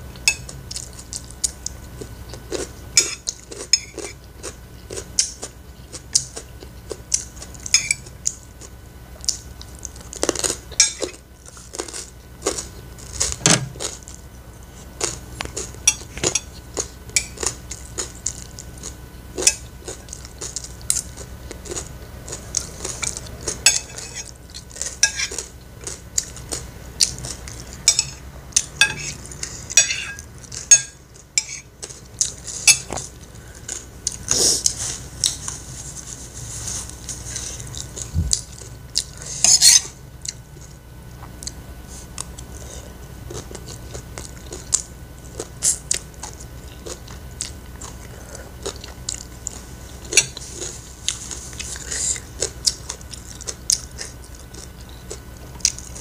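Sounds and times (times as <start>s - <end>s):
cutlery clinking on a plate: 28.8s - 29.2s.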